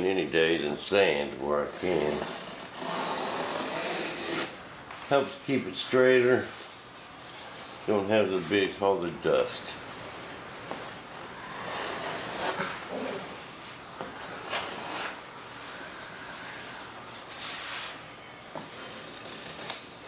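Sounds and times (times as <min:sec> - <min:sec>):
hand plane scraping wood: 0:01.8 - 0:04.5, 0:11.1 - 0:13.4.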